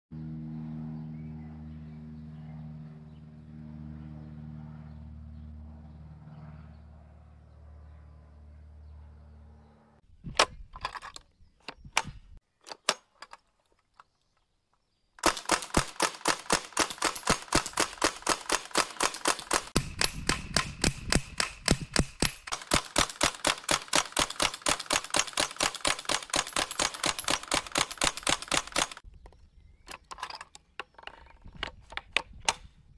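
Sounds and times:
gun handling clicks: 10.3 - 14.1, 15.2 - 29.1
bb gun rapid firing: 15.2 - 29.0.

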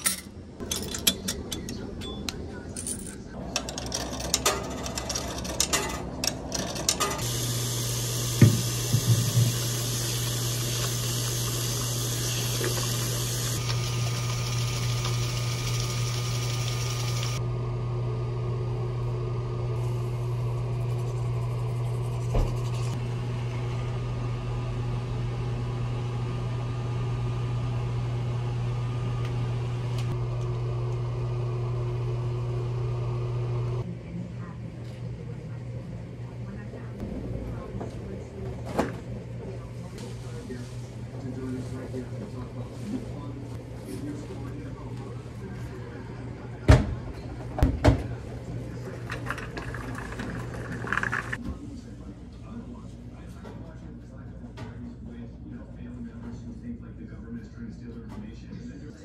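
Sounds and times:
low machine hum: 0.0 - 59.0.

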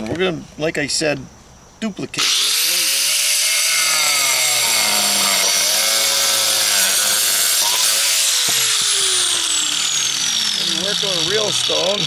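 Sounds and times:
angle grinder cutting stone: 2.2 - 12.0
sharp knocks: 8.4 - 9.3.

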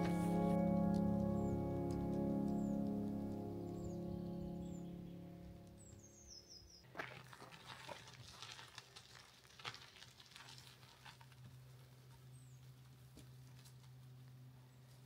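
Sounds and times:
low steady hum: 0.0 - 6.4.

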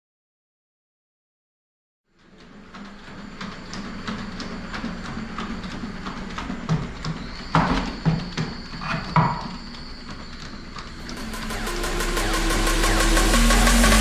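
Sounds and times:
robot feet tapping: 2.3 - 11.2
high motor whine: 7.0 - 14.0
steady hum: 9.5 - 14.0.

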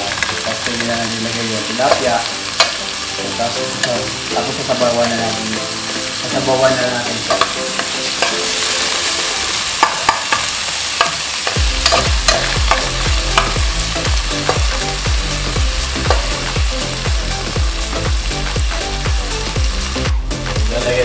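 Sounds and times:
food sizzling in oil: 0.0 - 21.0
low thudding beat: 11.6 - 21.0.

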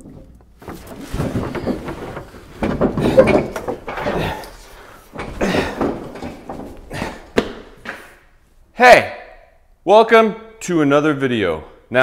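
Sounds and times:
wooden boards knocking and scraping: 0.0 - 8.0
rustling: 0.0 - 8.6.

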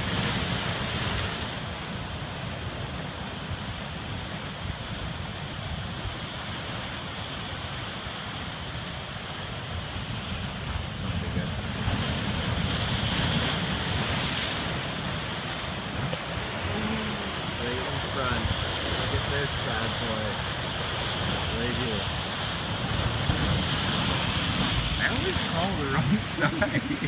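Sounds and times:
surf breaking on rocky shore: 0.0 - 27.0
wind buffeting microphone: 9.6 - 27.0.

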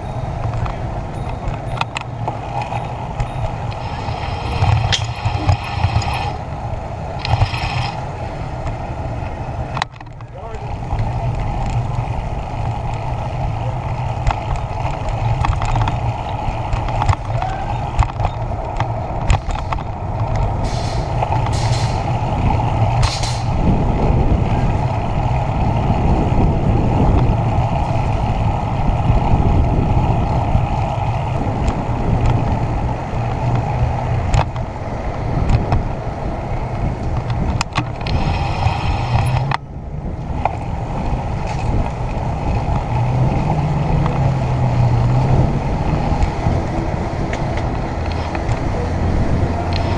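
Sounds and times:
bicycle rolling rumble: 0.0 - 49.9
clicks and rattles: 4.6 - 6.4
wind buffeting: 10.4 - 49.9.

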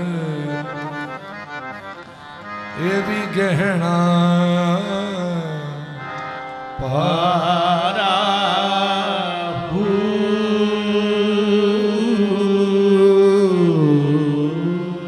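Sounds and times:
harmonium: 0.0 - 15.0
devotional singing: 6.8 - 15.0.

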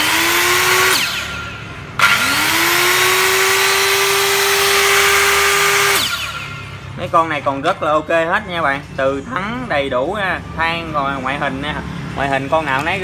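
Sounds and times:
circular saw motor whining: 0.0 - 6.8.

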